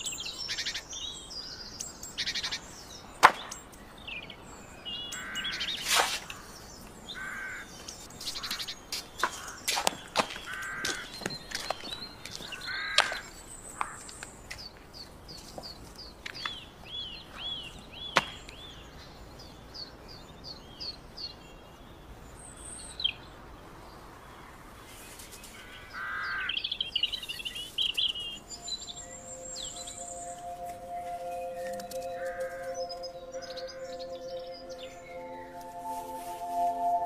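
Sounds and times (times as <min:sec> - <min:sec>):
bird trill: 0:00.0 - 0:14.1, 0:26.0 - 0:37.0
harsh bird calls: 0:00.0 - 0:14.8, 0:25.6 - 0:37.0
songbird repeating high note: 0:28.4 - 0:37.0.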